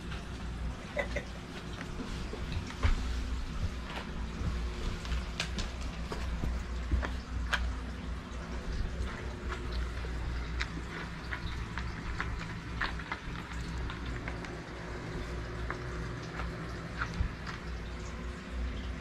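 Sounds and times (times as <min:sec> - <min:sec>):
low steady hum: 0:00.0 - 0:19.0
dogs licking and mouthing: 0:08.6 - 0:17.9.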